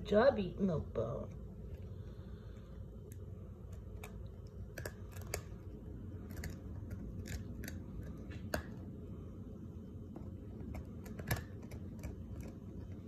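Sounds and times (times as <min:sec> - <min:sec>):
puppy crunching dog biscuit: 0:03.7 - 0:08.6.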